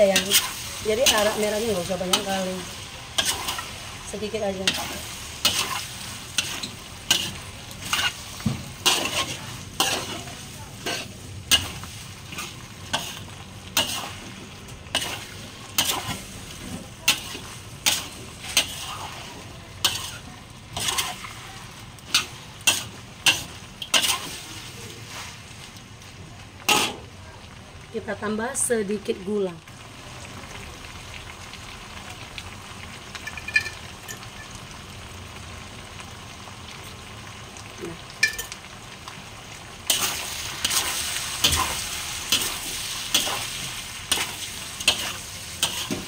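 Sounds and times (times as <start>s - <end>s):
metal spatula scraping wok: 0.0s - 25.5s, 26.6s - 27.0s, 39.9s - 46.0s
low sizzle: 0.0s - 46.0s.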